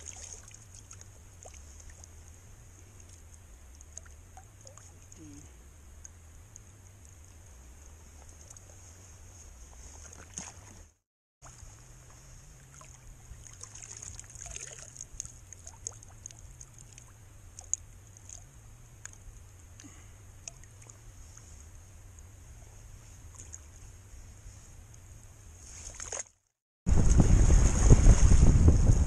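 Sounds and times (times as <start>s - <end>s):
water trickling and dripping: 0.0s - 8.8s, 12.5s - 21.5s
wind rumble on microphone: 26.9s - 29.0s.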